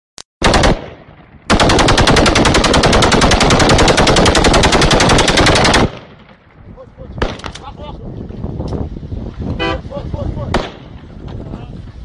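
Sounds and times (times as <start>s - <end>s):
automatic gunfire: 0.4s - 6.3s.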